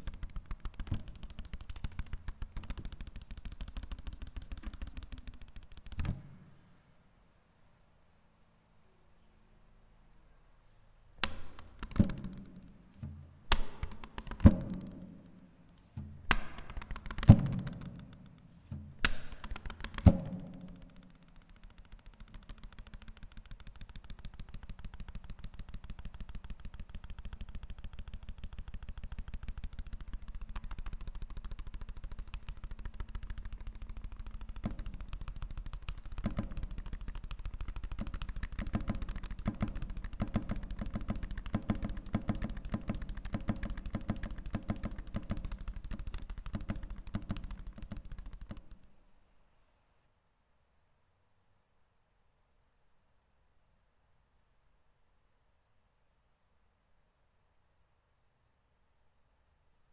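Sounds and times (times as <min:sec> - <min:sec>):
rapid patter of taps: 0:00.0 - 0:06.3, 0:11.2 - 0:15.1, 0:16.3 - 0:18.4, 0:19.0 - 0:48.9
sharp hits on paper: 0:00.0 - 0:06.5, 0:11.2 - 0:48.9.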